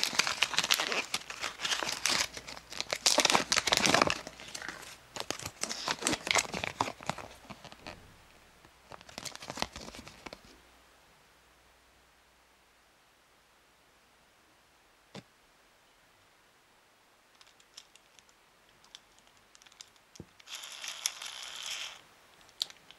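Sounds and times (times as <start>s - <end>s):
plastic wrapper crinkling: 0.0s - 8.0s, 8.8s - 10.4s, 17.4s - 22.9s.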